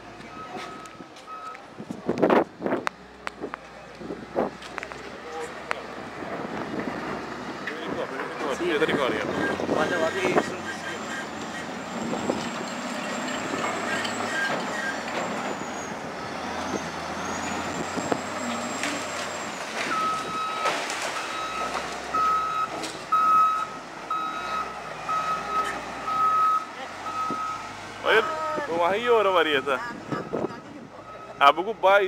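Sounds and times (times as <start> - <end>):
loader engine running: 0.0 - 32.0
reversing alarm beeping: 19.9 - 28.3.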